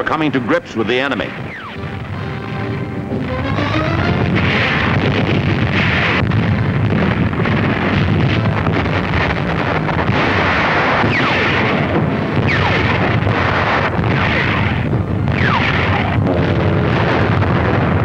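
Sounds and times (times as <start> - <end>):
gunfire and explosions: 0.0 - 18.0.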